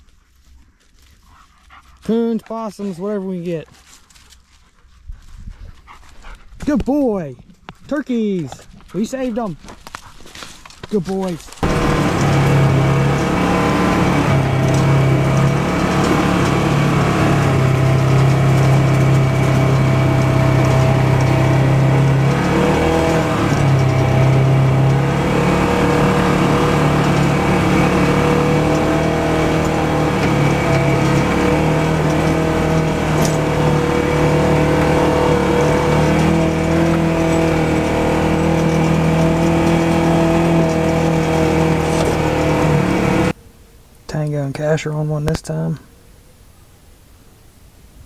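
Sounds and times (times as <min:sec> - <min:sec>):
vehicle engine running: 0:10.9 - 0:43.4.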